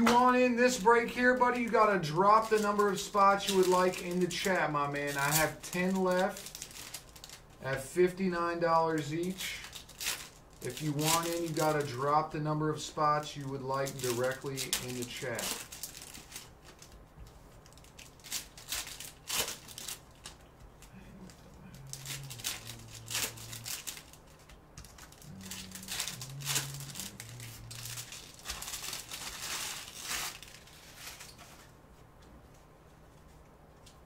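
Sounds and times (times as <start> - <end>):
card pack wrappers tearing: 0.0 - 7.5, 9.0 - 12.3, 13.0 - 16.9, 17.6 - 20.5, 21.2 - 31.7.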